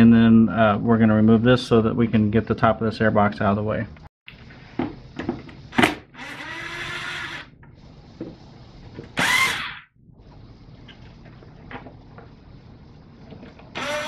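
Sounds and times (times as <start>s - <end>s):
impact driver running: 13.8s - 14.0s.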